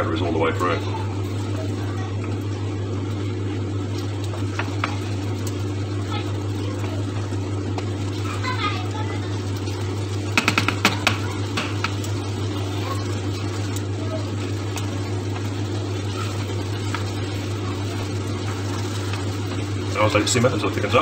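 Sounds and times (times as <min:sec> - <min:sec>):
steady low hum: 0:00.0 - 0:21.0
utensil clicking against pan: 0:10.3 - 0:12.2.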